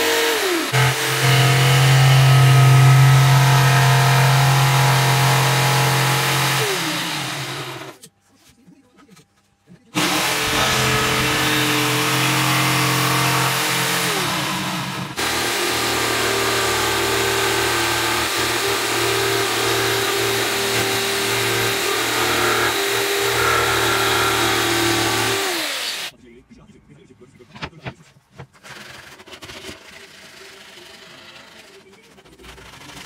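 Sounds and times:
jigsaw cutting wood: 0:00.0 - 0:08.0, 0:10.0 - 0:26.1.

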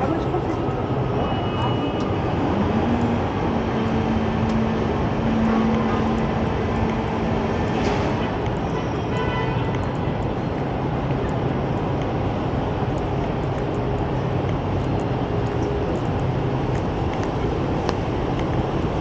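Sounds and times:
traffic on wet pavement: 0:00.0 - 0:19.0
faint tone: 0:01.2 - 0:03.1.

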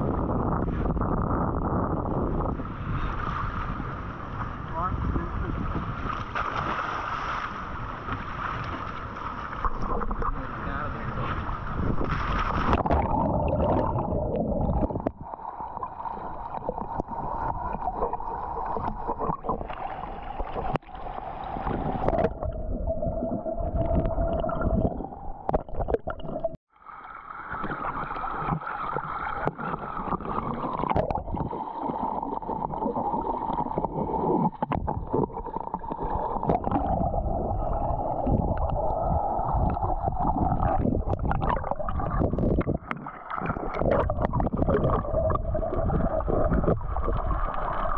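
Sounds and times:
muffled underwater water noise: 0:00.0 - 0:47.9.

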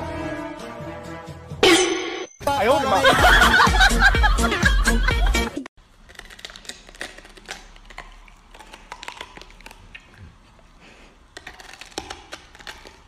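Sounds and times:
dog chewing cabbage: 0:05.8 - 0:13.0.

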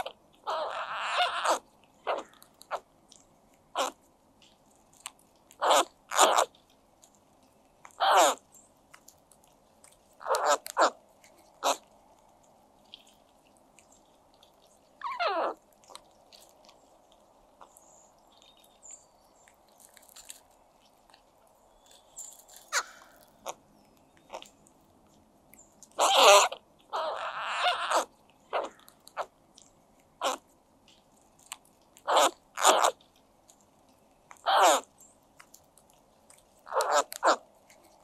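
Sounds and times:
crows calling: 0:00.0 - 0:02.8, 0:03.7 - 0:04.0, 0:05.6 - 0:06.6, 0:07.9 - 0:08.5, 0:10.2 - 0:11.9, 0:21.8 - 0:23.7, 0:25.9 - 0:29.3, 0:30.2 - 0:30.4, 0:32.0 - 0:33.0, 0:34.4 - 0:34.9, 0:36.7 - 0:37.5.

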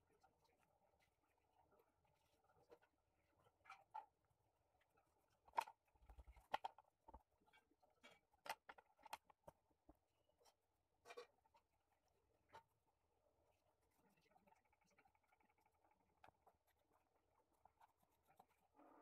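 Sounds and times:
pencil scratching on paper: 0:11.3 - 0:19.0.

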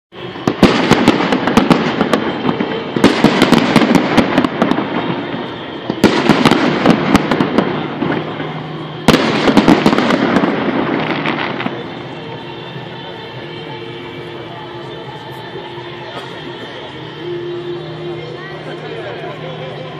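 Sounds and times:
fireworks bursting: 0:00.1 - 0:19.9
crackling firework pops: 0:00.4 - 0:08.4, 0:09.1 - 0:11.9.

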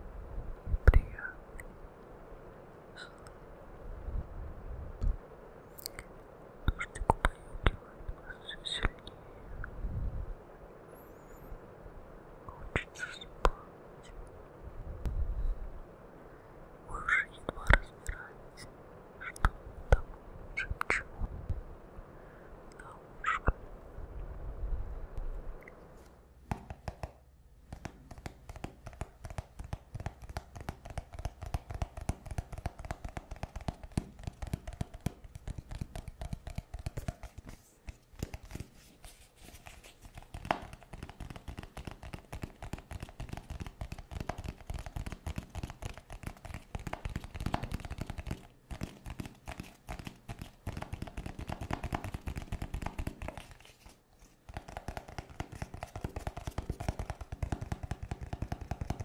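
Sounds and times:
fingernails tapping on cardboard box: 0:26.5 - 0:37.5, 0:40.0 - 0:53.6, 0:54.5 - 0:59.0.

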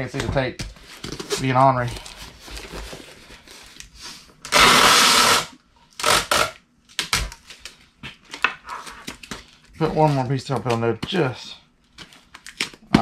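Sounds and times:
packing tape ripping: 0:04.4 - 0:07.4.

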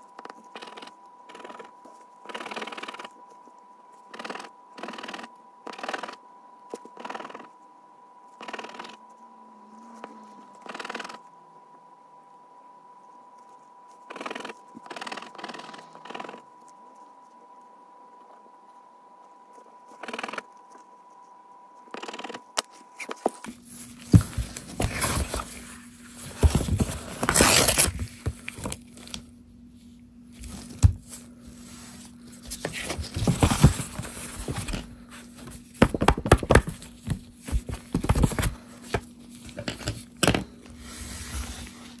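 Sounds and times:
tweezers scraping lottery tickets: 0:00.3 - 0:06.2
paper rustling: 0:23.0 - 0:29.2, 0:30.3 - 0:40.0.

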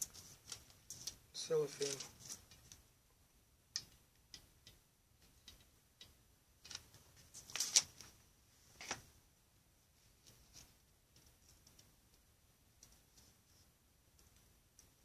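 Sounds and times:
light clicks and taps: 0:03.7 - 0:07.0.

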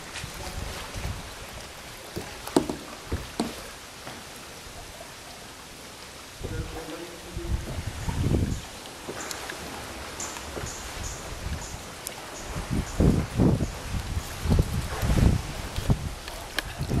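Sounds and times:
kayak paddle strokes in water: 0:00.0 - 0:05.4, 0:07.6 - 0:17.0
small splashes and drips: 0:07.6 - 0:17.0.

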